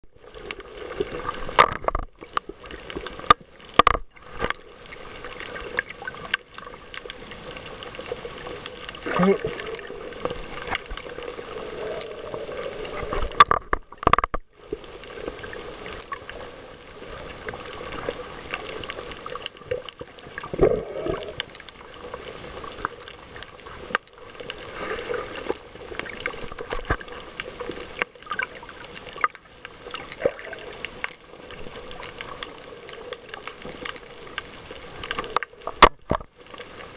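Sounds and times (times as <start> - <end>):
underwater rushing and bubbling: 0.0 - 36.9
small clicks: 31.9 - 36.8.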